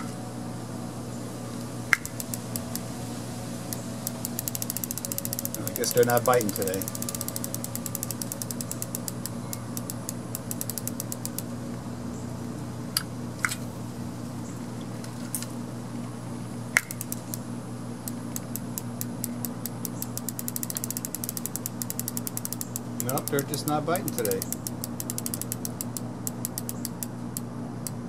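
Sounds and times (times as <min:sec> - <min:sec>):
steady low hum: 0:00.0 - 0:28.0
fishing reel ratchet clicking: 0:01.9 - 0:02.9, 0:03.7 - 0:11.5, 0:16.8 - 0:17.4, 0:18.1 - 0:28.0.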